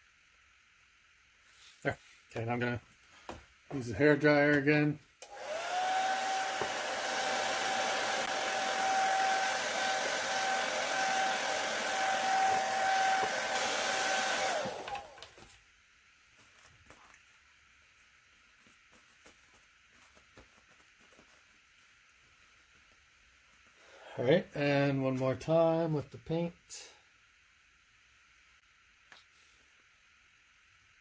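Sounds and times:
hair dryer blowing: 5.2 - 15.4.

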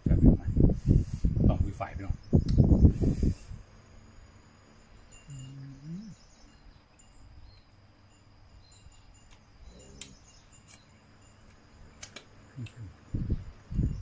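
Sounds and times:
faint bird chirps: 1.1 - 14.0
man humming appreciatively: 5.3 - 6.2, 12.6 - 13.0.

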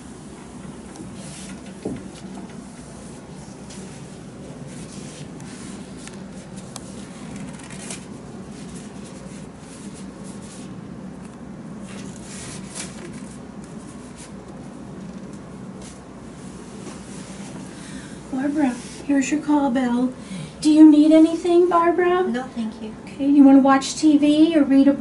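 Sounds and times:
paper towel rustling: 0.0 - 19.6
low room hum: 0.0 - 25.0
plastic gloves rustling: 0.8 - 19.0.

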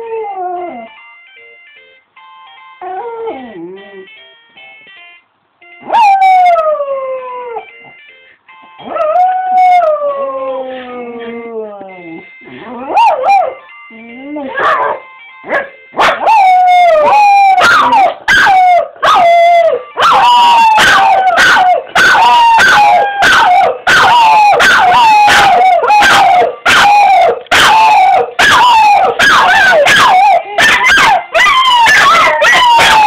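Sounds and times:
telephone ringing: 15.0 - 16.0
dogs howling: 16.2 - 33.0.

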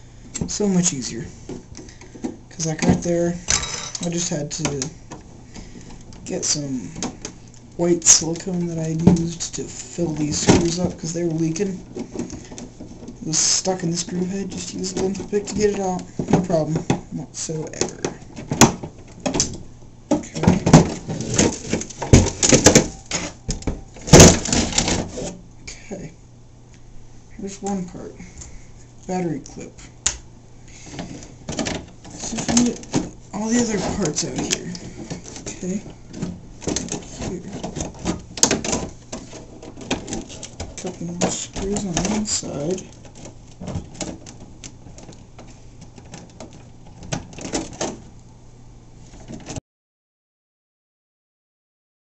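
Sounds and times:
steady low hum: 0.0 - 49.6
plastic hull knocking and clattering: 20.1 - 25.2.

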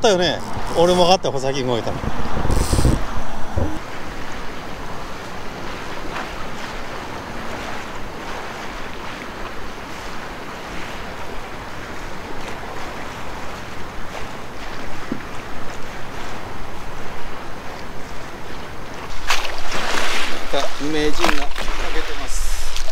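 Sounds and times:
wind buffeting microphone: 0.0 - 19.0
small waves lapping: 0.0 - 22.9.

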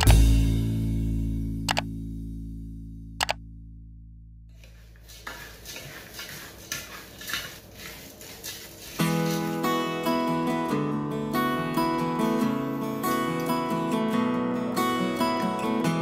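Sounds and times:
acoustic guitar music: 0.0 - 4.5, 9.0 - 16.0
spoon stirring dry mix in pan: 4.6 - 10.2.

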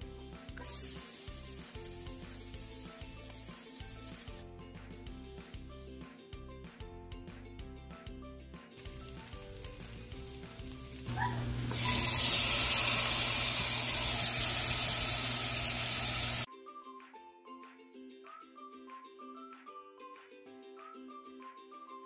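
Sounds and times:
faint background music: 0.0 - 11.7, 16.4 - 22.0
food sizzling in saucepan: 0.6 - 4.4, 8.8 - 16.5.

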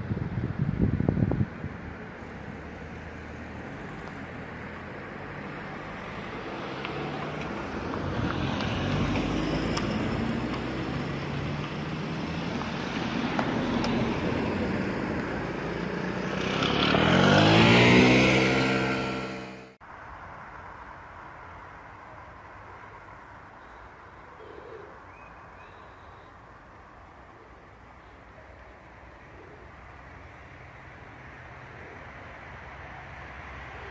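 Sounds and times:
road traffic: 0.0 - 33.9
vehicle accelerating past: 2.4 - 19.8.

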